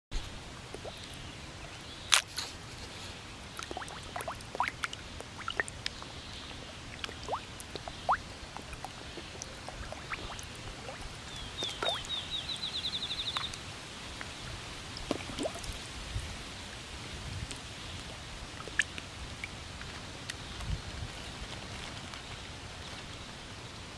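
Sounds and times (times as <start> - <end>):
fish slurping at water surface: 0.2 - 12.6, 15.0 - 15.8.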